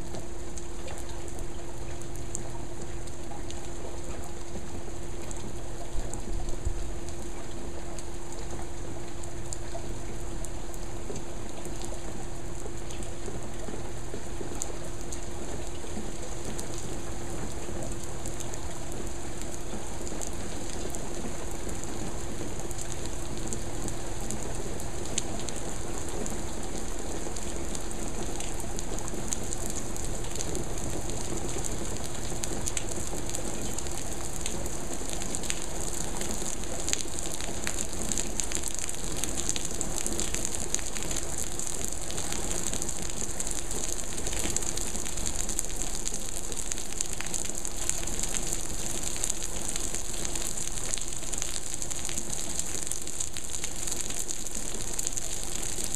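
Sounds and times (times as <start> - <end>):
ticks of raindrops: 0.0 - 55.9
heavy rain falling: 19.9 - 55.9.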